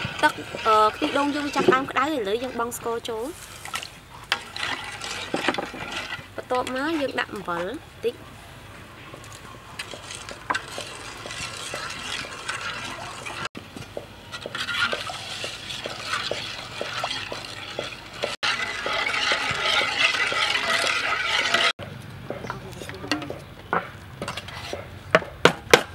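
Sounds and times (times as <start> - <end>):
spoon stirring liquid in a pot: 0.1 - 7.8, 9.1 - 21.8.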